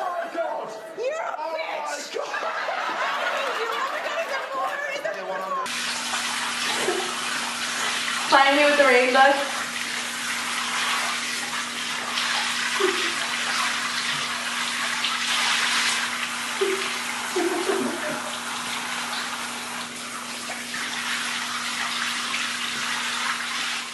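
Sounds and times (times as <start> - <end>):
shower water spraying: 5.6 - 23.9.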